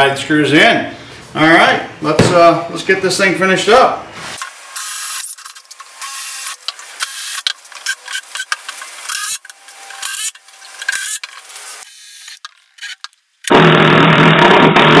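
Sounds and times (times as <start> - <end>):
cordless drills drilling into wood: 6.0 - 8.5, 11.8 - 14.2.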